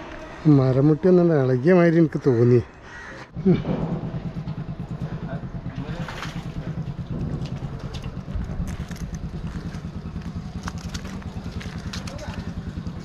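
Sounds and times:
engine idling: 3.3s - 13.0s.

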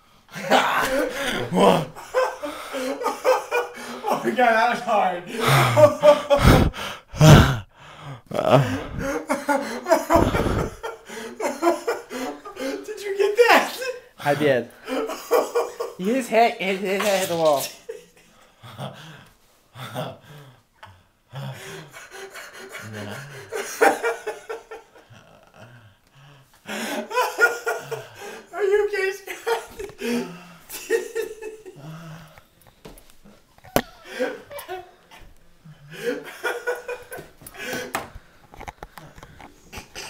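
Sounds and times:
man laughing breathlessly: 0.3s - 4.7s, 5.3s - 13.0s, 21.3s - 25.9s, 26.6s - 32.4s, 33.8s - 38.0s.

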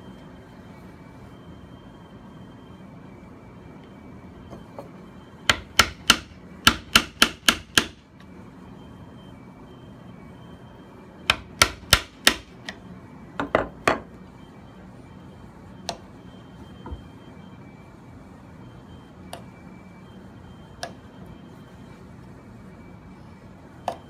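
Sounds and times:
hammer striking chisel in wood: 5.5s - 8.0s, 11.3s - 12.8s.

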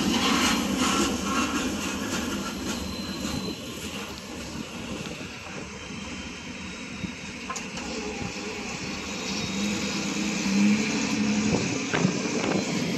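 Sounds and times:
freight train rumble: 0.0s - 12.9s
road noise hiss: 0.0s - 12.9s.

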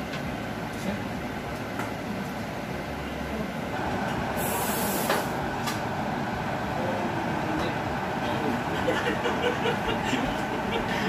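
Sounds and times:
short high hiss: 4.4s - 5.4s.

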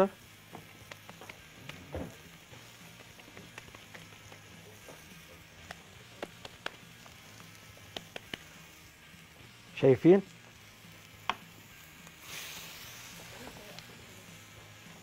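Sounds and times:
meat sizzling on grill: 0.0s - 15.0s
small crackles: 0.6s - 8.8s, 10.9s - 14.1s.

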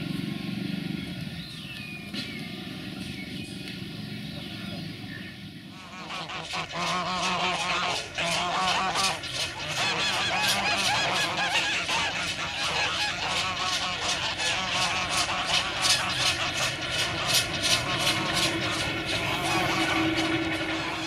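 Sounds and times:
geese honking: 5.7s - 21.0s
steam locomotive chuffing: 5.9s - 21.0s.

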